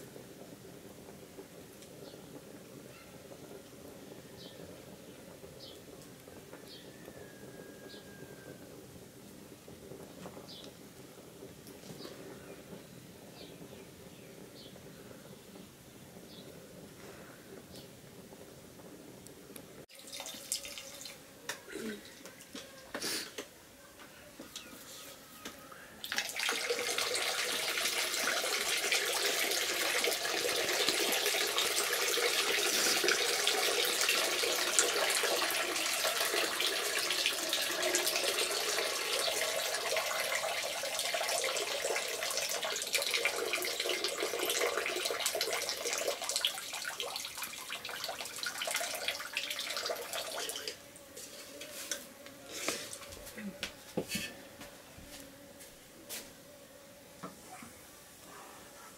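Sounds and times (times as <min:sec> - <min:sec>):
water running and splashing: 0:19.9 - 0:21.2, 0:26.0 - 0:50.8.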